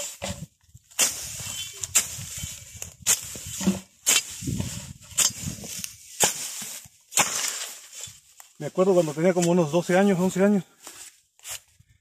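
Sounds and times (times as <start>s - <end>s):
machete chopping dry grass: 0.0s - 8.0s
dry grass rustling: 0.0s - 11.8s.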